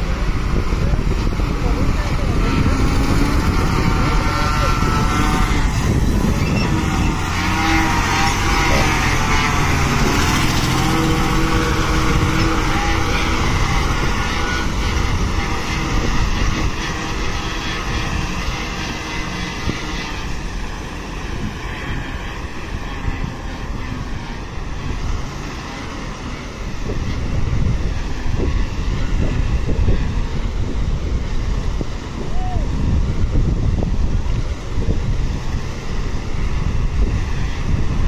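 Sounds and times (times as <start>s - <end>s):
vehicle engine running: 0.0s - 38.0s.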